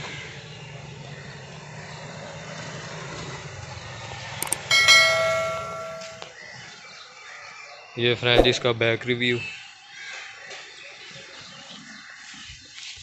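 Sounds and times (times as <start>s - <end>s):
bell ding: 4.4s - 6.3s.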